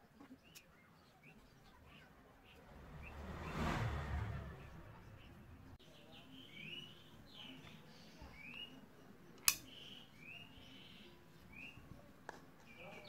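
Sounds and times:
small birds chirping: 0:00.0 - 0:13.0
slingshot sharp click: 0:09.4 - 0:09.8.

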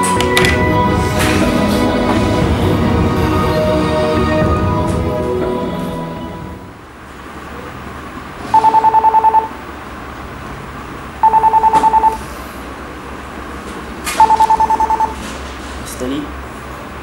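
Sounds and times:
mobile phone ringing: 0:08.5 - 0:09.6, 0:11.2 - 0:12.3, 0:14.2 - 0:15.2.

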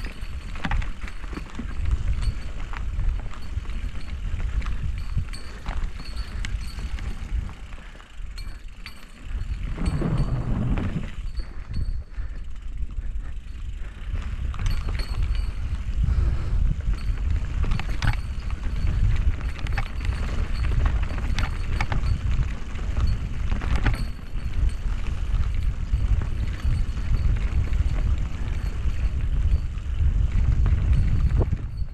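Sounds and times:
tyres rolling on dirt: 0:00.0 - 0:11.7
bike clacking and rattling: 0:00.0 - 0:31.9
wind on microphone: 0:00.0 - 0:31.9.

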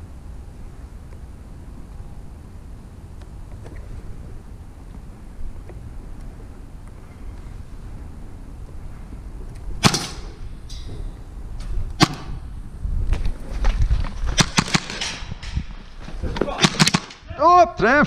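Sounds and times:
airsoft pistol shots: 0:09.8 - 0:10.4, 0:12.0 - 0:12.4, 0:14.4 - 0:15.0, 0:16.6 - 0:17.2.

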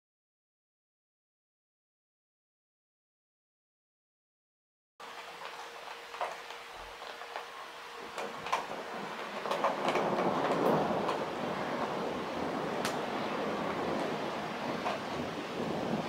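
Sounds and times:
torrential rain falling: 0:05.0 - 0:16.0.

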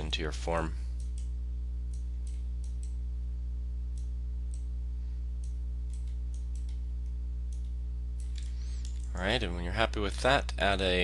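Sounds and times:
low electrical hum: 0:00.0 - 0:11.0
computer mouse clicks: 0:05.4 - 0:09.2.

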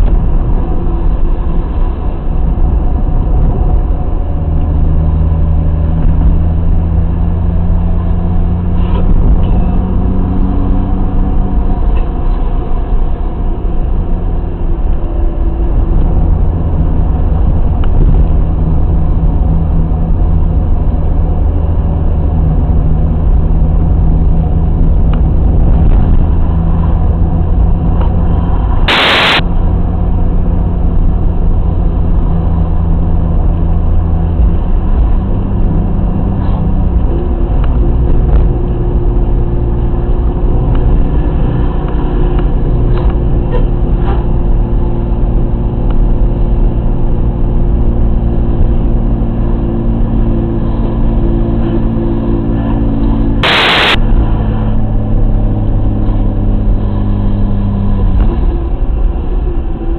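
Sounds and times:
car engine running: 0:00.0 - 0:59.9
short sharp burst of noise: 0:28.8 - 0:29.5, 0:53.4 - 0:54.2.

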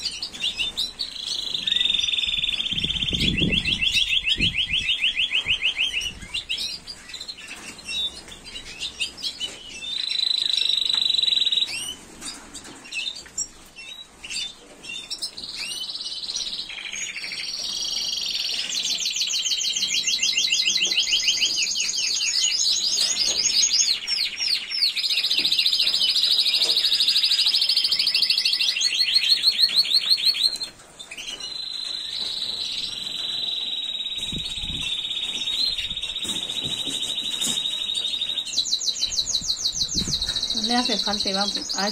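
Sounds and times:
canaries singing metallic trills: 0:00.0 - 0:41.9.

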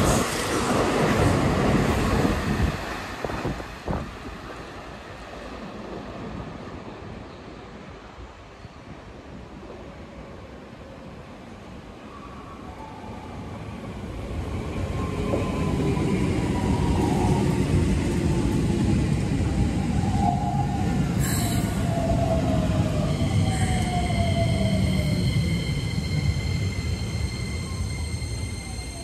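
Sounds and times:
train wheels rumbling on rails: 0:00.0 - 0:06.9
high brake squeal: 0:21.2 - 0:22.0, 0:23.2 - 0:29.0.

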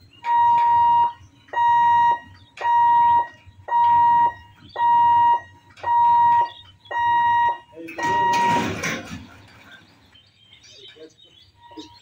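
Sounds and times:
level crossing warning beeps: 0:00.0 - 0:09.0, 0:11.5 - 0:12.0.

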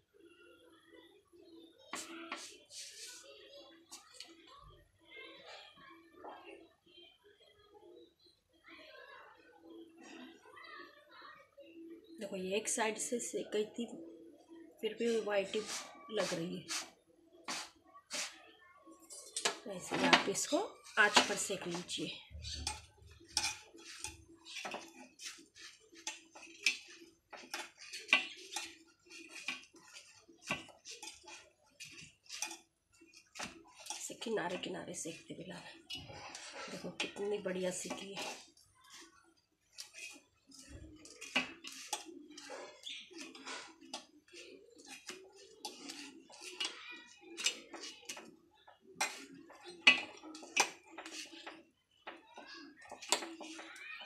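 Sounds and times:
metal tongs clinking on burner: 0:19.2 - 0:33.1, 0:49.0 - 0:51.2.

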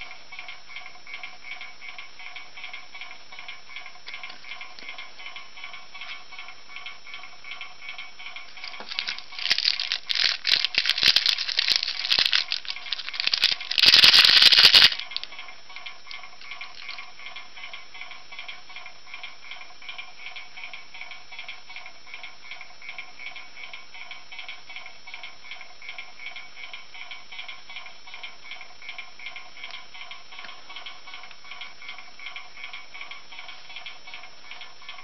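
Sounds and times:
candy bag crinkling and rattling: 0:08.6 - 0:15.3, 0:16.4 - 0:17.1.

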